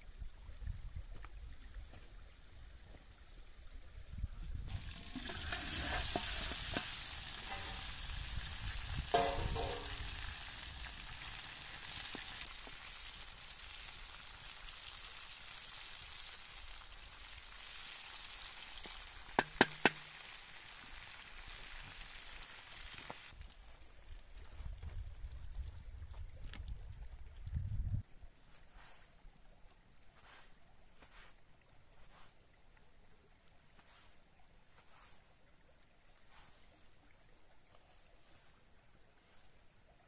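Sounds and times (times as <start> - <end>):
meat sizzling in a metal pot: 4.7 - 23.4.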